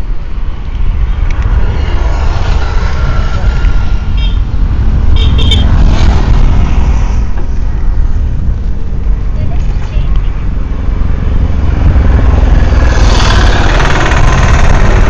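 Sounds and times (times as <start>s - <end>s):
road traffic passing: 0.0s - 15.0s
wind on microphone: 0.0s - 15.0s
high horn toots: 1.8s - 5.8s.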